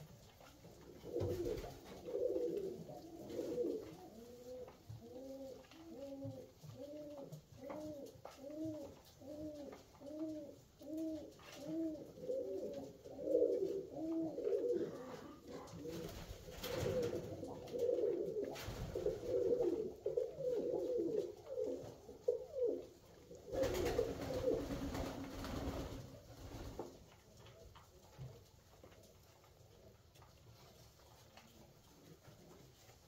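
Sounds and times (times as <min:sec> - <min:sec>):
rustling noise: 0:00.0 - 0:33.0
pigeons cooing: 0:00.8 - 0:26.6.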